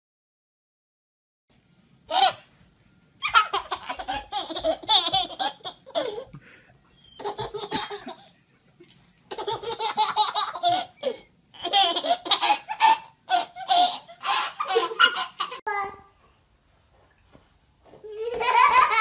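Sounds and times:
baby laughing: 2.1 - 2.5, 3.2 - 6.4, 7.0 - 8.3, 9.3 - 15.7, 18.1 - 19.0.

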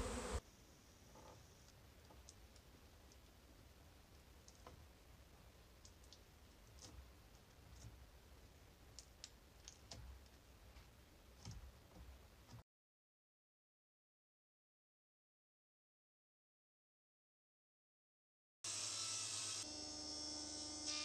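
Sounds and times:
faint high-pitched clicks: 1.2 - 3.4, 5.8 - 7.6.

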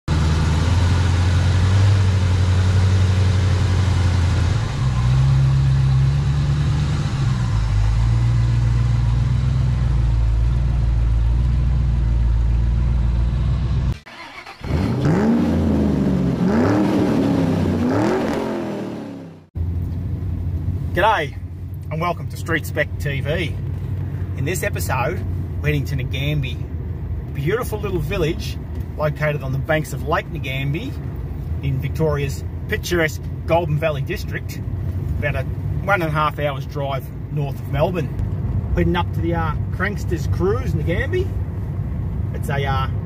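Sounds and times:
car engine idling: 0.1 - 16.6, 18.9 - 43.0
engine revving: 0.1 - 19.5.

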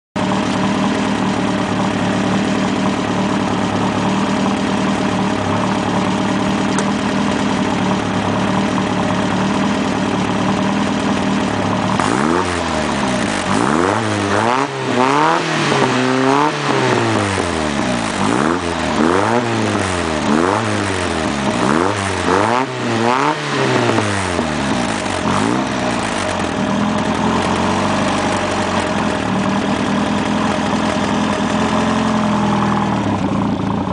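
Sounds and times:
car engine idling and revving: 0.2 - 33.9.

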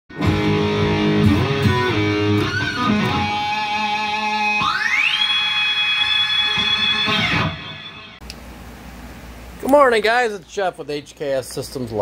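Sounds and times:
electric guitar sustained notes: 0.2 - 8.2.

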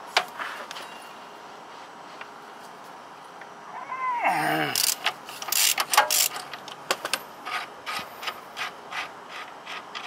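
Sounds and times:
ratchet wrench clicking: 4.8 - 6.5.

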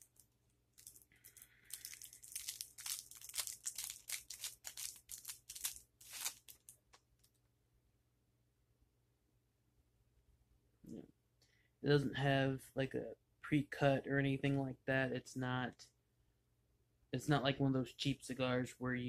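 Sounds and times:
wrapper crinkling and tearing: 0.0 - 7.3.

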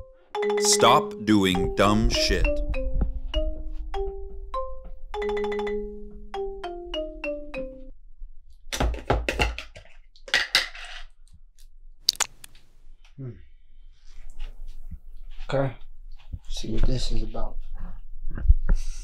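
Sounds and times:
music cue of quick descending notes: 0.6 - 5.5
plastic jar being opened: 12.1 - 12.6.

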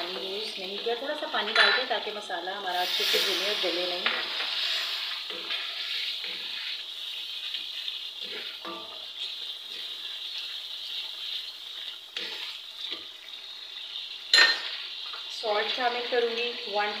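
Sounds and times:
food sizzling in a pan: 0.0 - 17.0
wooden spatula scraping: 2.8 - 6.9.

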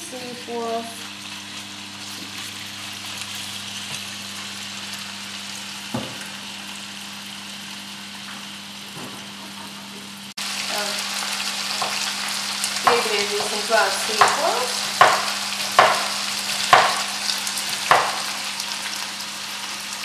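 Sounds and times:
meat sizzling in a frying pan: 0.1 - 9.4, 10.2 - 20.0
knock: 5.9 - 6.2.

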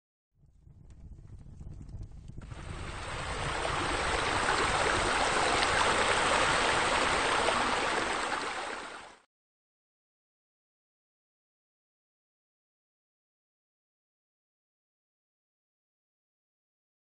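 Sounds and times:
water pouring into pool: 2.5 - 9.2.

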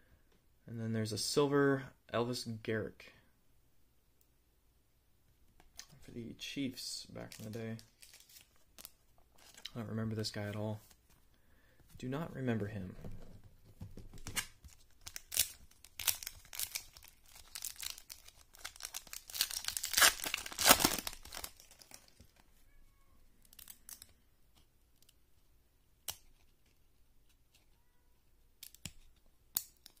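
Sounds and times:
foil wrapper tearing and crinkling: 14.7 - 22.1
faint clicks of cards handled: 28.6 - 30.0.

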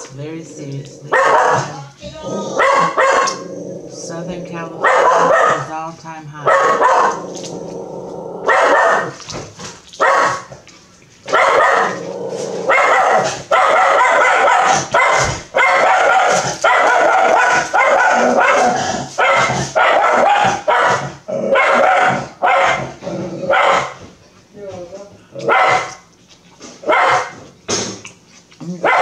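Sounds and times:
dog barking: 1.1 - 1.8, 2.6 - 3.4, 4.8 - 5.7, 6.4 - 7.2, 8.4 - 9.2, 10.0 - 10.5, 11.3 - 12.0, 12.7 - 24.0, 25.4 - 26.1, 26.8 - 27.4, 28.8 - 29.0.

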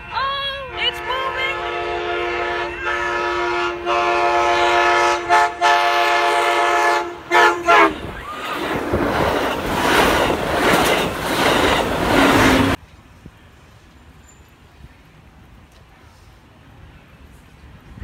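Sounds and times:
train horn blowing a chord: 0.0 - 8.2
train cars rushing by: 0.0 - 18.0.

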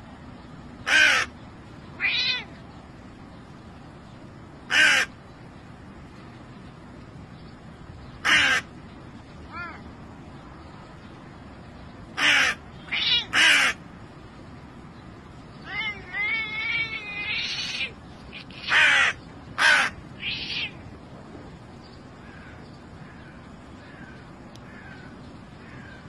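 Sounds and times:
crow cawing: 0.8 - 1.3, 4.7 - 5.1, 8.2 - 8.7, 12.2 - 13.8, 18.5 - 20.8, 22.2 - 26.0.

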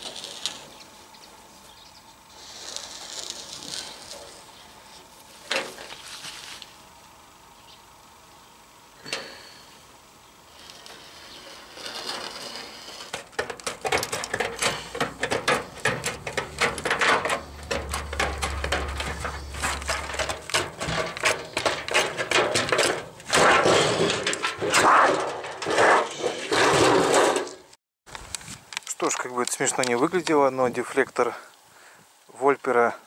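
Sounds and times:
sheet metal scraping and rattling: 10.7 - 27.6.

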